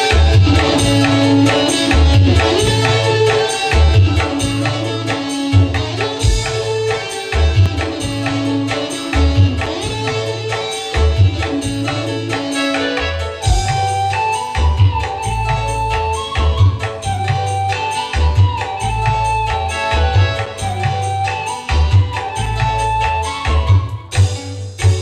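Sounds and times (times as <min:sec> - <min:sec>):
hand drum beat: 0:00.0 - 0:12.7
held melody notes: 0:00.0 - 0:25.0.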